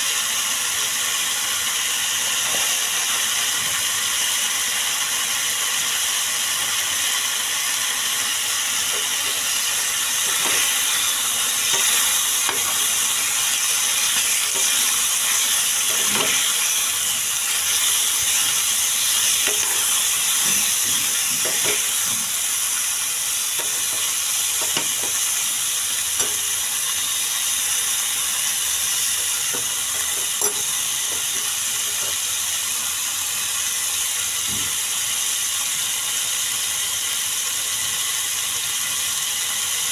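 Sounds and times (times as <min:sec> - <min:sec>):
chicken sizzling in a pan: 0:00.0 - 0:39.9
metal spoon scraping a pan: 0:08.9 - 0:22.0.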